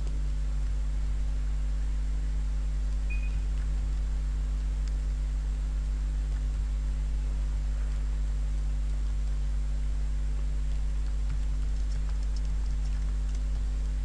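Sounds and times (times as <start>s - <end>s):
steady low hum: 0.0s - 14.0s
keyboard typing: 10.7s - 14.0s.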